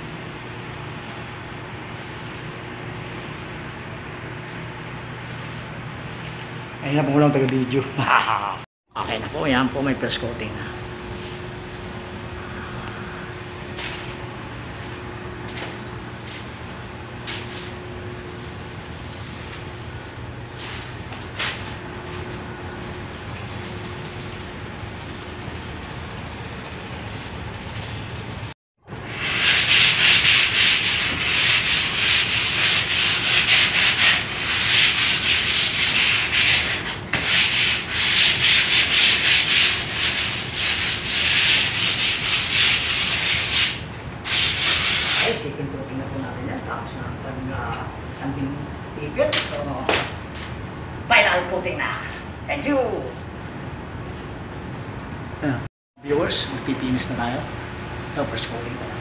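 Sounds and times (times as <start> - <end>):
hand sanding scraping strokes: 0.0 - 6.7, 29.0 - 45.4
faint hum: 0.0 - 29.3, 45.4 - 59.0.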